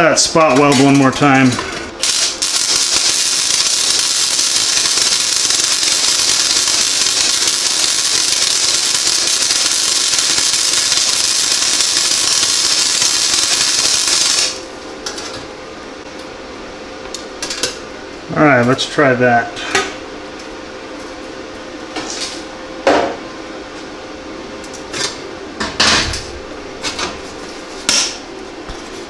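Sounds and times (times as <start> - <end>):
welding arc sizzling: 0.0 - 14.8.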